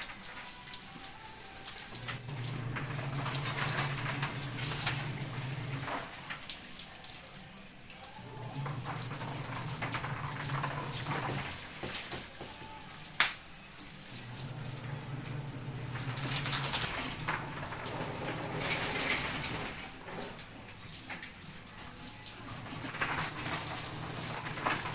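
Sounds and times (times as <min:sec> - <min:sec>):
hose water splashing: 0:00.0 - 0:24.9.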